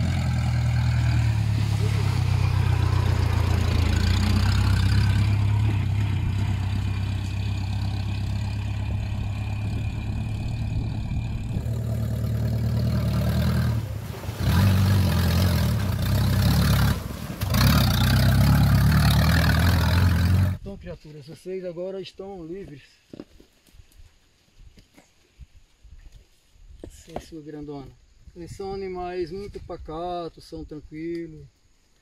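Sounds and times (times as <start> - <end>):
jeep engine running: 0.0 - 20.6.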